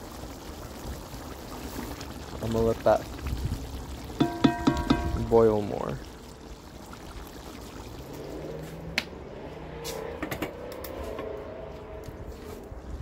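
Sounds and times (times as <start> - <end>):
pot bubbling on stove: 0.0 - 9.3.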